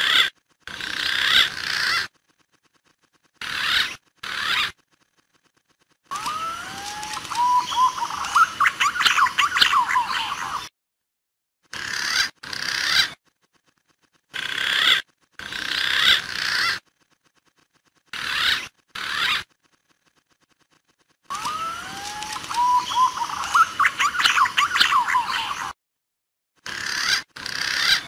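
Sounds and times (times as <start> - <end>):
pigeon whistled calls: 6.1 - 10.7, 21.3 - 25.8.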